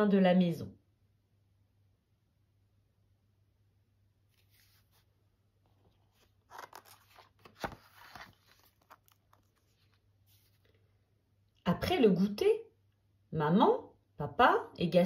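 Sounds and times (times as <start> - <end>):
paper page rustling: 4.3 - 10.8
soft knock of page settling: 6.5 - 9.5.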